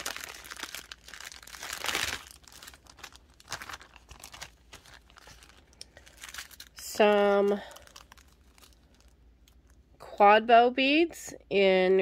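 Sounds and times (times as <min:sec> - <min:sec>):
plastic bags crinkling: 0:00.0 - 0:09.8.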